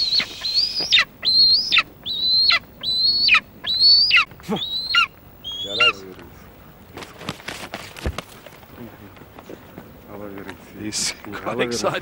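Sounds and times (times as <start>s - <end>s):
eagle calling high cries: 0.0s - 6.1s.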